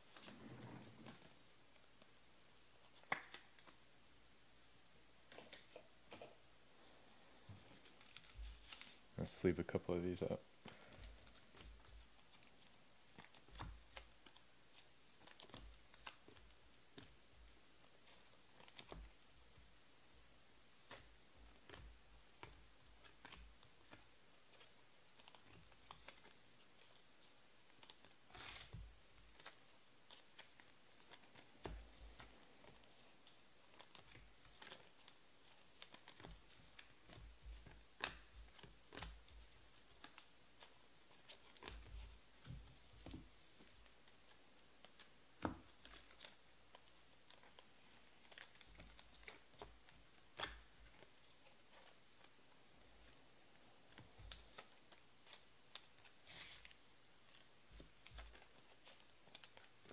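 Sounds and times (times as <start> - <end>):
soft rustles: 0.0 - 2.1, 5.3 - 19.7.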